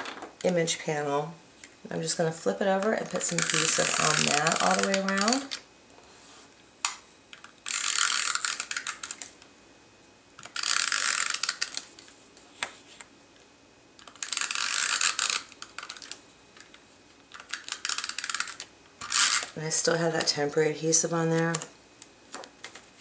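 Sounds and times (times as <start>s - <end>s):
tape runner drawn along card: 2.8s - 6.5s.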